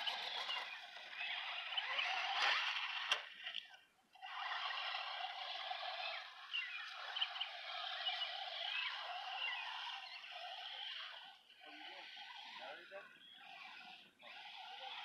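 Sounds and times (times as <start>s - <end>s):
bird chirps: 0.0s - 2.3s, 5.5s - 12.0s, 12.6s - 14.2s.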